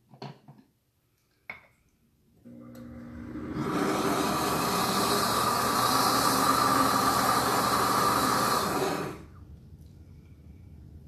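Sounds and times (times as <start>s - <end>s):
blender motor running: 2.5s - 9.3s.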